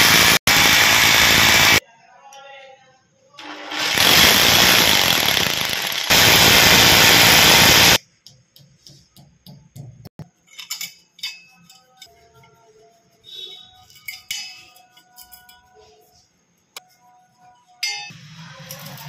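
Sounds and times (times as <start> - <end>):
electric drill boring through tile: 0.0 - 1.8, 3.4 - 8.0.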